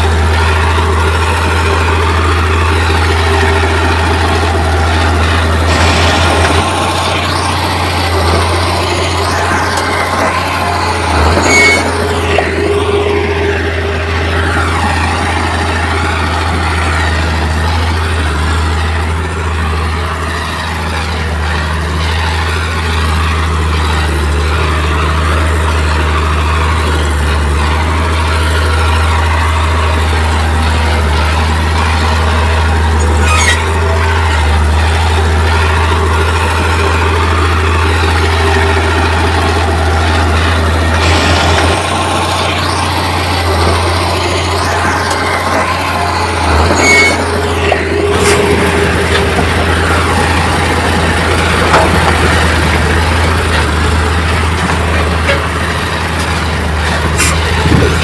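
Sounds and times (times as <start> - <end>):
heavy diesel engine running: 0.0 - 58.0
high squeak: 7.1 - 12.5, 33.0 - 34.2, 46.2 - 48.6.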